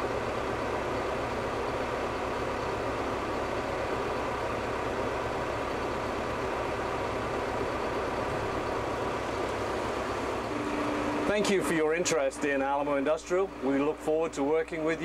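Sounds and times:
tractor diesel engine running: 0.0s - 15.0s.

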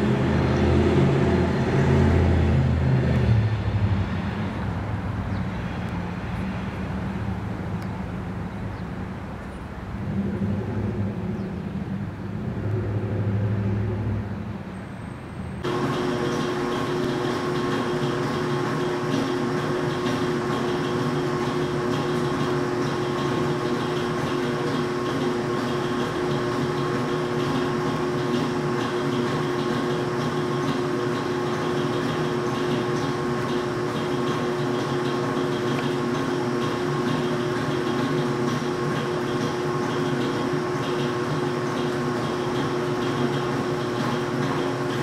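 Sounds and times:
diesel locomotive droning: 0.0s - 28.5s.

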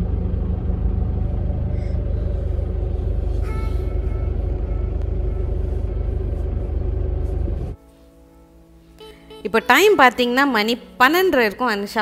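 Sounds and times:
car engine and road rumble: 0.0s - 7.8s
brief high tone: 3.3s - 5.9s.

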